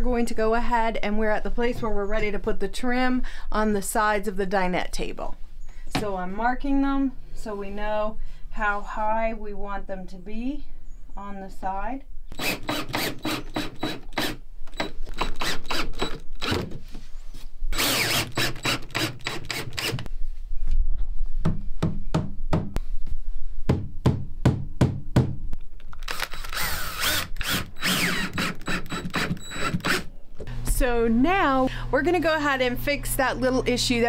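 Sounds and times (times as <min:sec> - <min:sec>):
cordless drill driving screws: 0:12.3 - 0:16.7, 0:17.7 - 0:20.1, 0:26.0 - 0:30.1.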